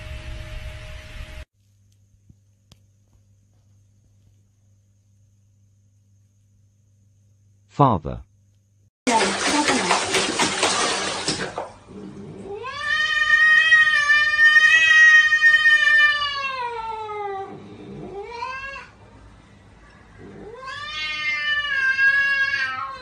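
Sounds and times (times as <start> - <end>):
cat yowling: 12.5 - 19.0, 20.2 - 23.0.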